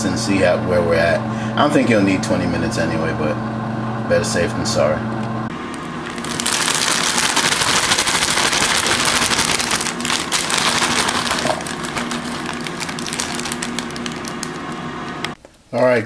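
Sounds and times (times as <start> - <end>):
plastic bag crinkling: 5.6 - 15.4
salad greens pouring into container: 5.8 - 14.9.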